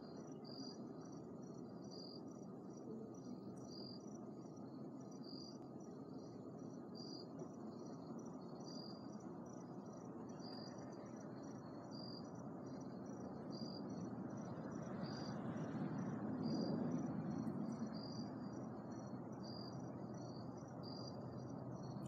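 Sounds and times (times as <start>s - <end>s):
insect chirping: 0.0s - 22.0s.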